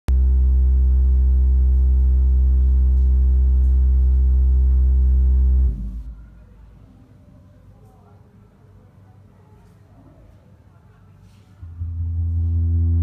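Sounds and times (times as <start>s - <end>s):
low-pitched hum: 0.1s - 6.3s, 11.6s - 13.0s.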